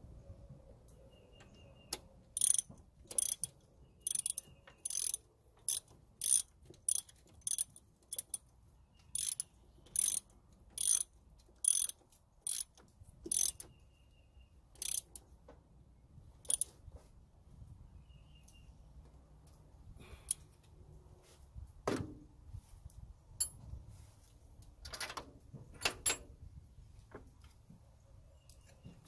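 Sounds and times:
ratchet wrench clicking: 0:02.4 - 0:08.4, 0:09.1 - 0:13.7, 0:14.8 - 0:15.2, 0:16.4 - 0:16.7.

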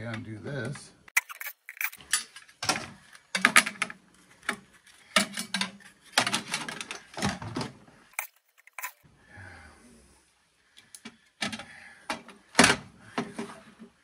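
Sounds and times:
metal parts clattering: 0:01.2 - 0:07.4, 0:08.1 - 0:09.0.

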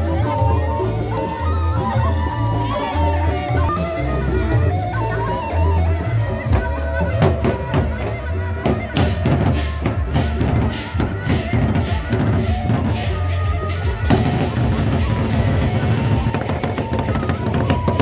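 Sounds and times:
large drums beating: 0:06.5 - 0:18.0.

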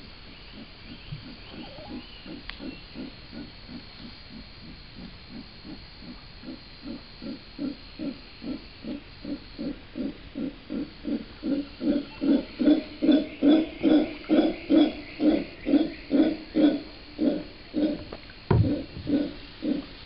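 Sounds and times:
howler monkeys grunting: 0:00.5 - 0:03.9, 0:04.7 - 0:20.0
single knock: 0:18.0 - 0:19.1.

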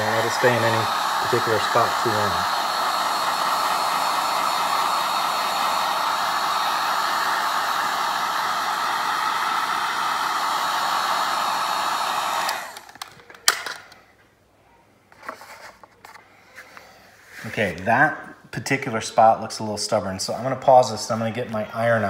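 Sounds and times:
heat gun blowing: 0:00.0 - 0:13.8.

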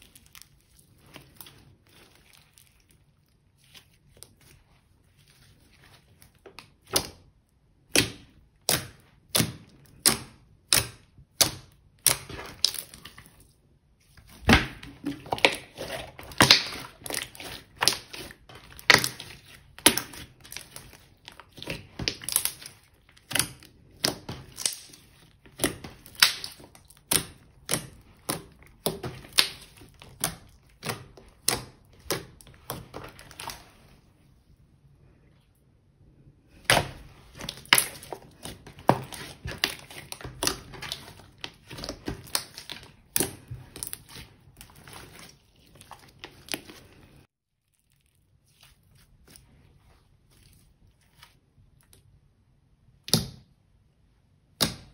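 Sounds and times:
sticky slime popping: 0:06.2 - 0:33.8, 0:36.5 - 0:49.5.

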